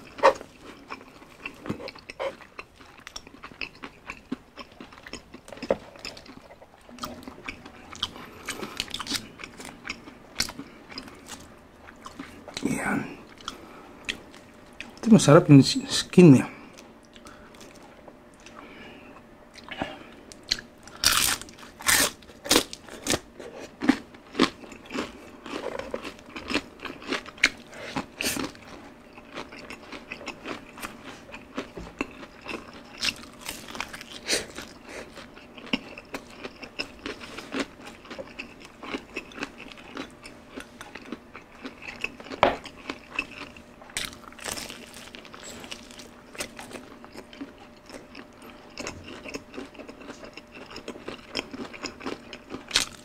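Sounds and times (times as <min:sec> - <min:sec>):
crunching crispy chicken skin: 0:20.5 - 0:23.2, 0:28.2 - 0:40.0, 0:41.7 - 0:47.5.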